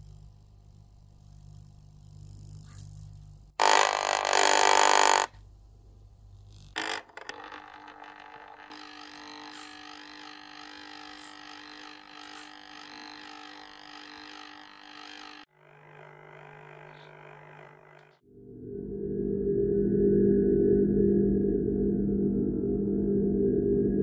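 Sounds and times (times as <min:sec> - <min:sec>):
magnet scraping metal edge: 0:02.6 - 0:05.3, 0:06.5 - 0:15.5
sci-fi drone: 0:07.5 - 0:24.0.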